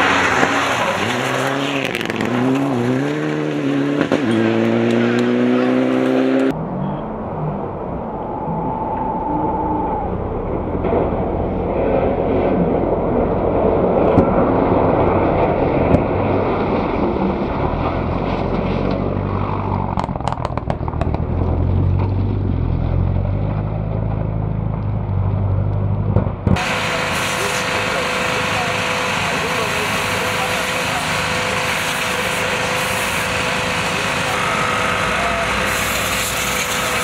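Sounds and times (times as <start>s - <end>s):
rally car engine running hard: 26.5s - 35.9s.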